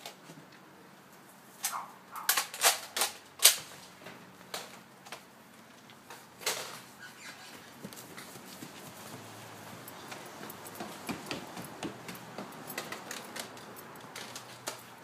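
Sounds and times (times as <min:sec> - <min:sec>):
sharp knocks: 0:10.1 - 0:13.3.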